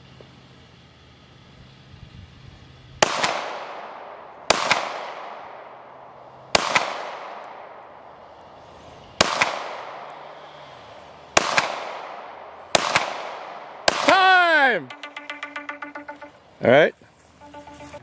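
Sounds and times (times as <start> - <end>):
pistol shots with echo: 3.0 - 5.8, 6.5 - 7.9, 9.2 - 10.1, 11.4 - 14.2.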